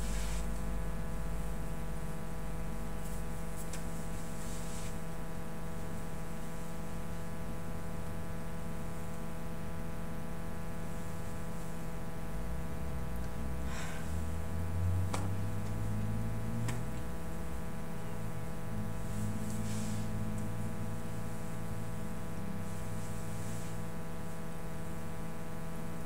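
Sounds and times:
electrical hum and hiss: 0.0 - 26.0.

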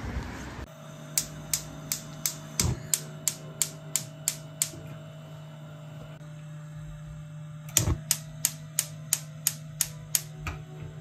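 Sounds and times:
steady low hum: 0.0 - 11.0
spark igniter clicking: 1.2 - 4.8, 7.7 - 10.3.

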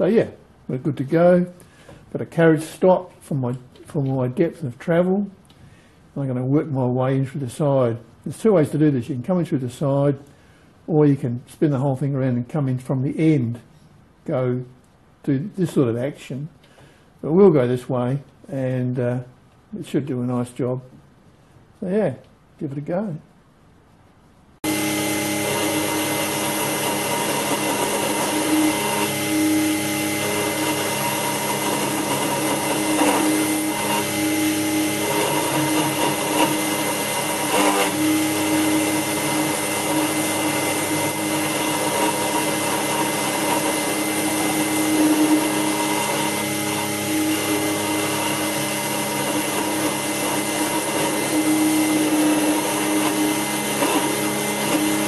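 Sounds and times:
end mill cutting brass: 24.6 - 55.0
milling spindle motor whining: 24.6 - 55.0.

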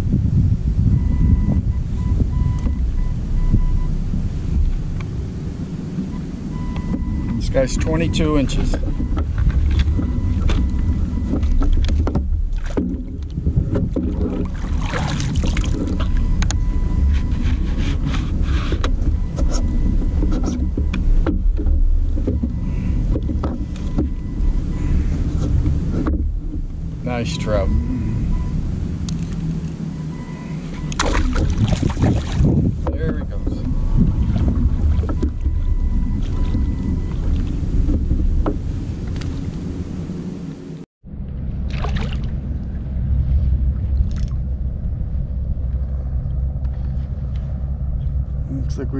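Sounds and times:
water lapping against hull: 0.0 - 40.6, 41.2 - 48.7
faint steady whine: 0.0 - 48.9
wind buffeting microphone: 0.0 - 48.9
gear clattering on plastic kayak: 6.8 - 27.8.

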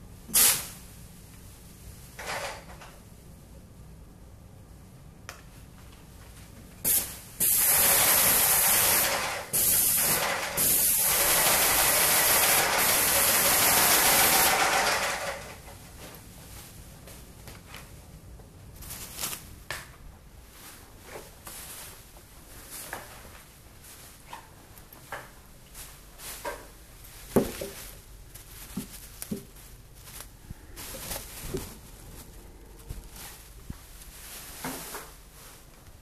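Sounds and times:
paint spray gun hissing: 0.3 - 0.7, 6.9 - 14.8.

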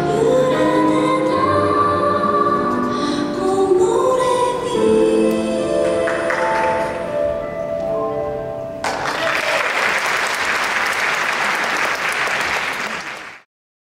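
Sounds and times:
audience applause: 8.8 - 13.5.

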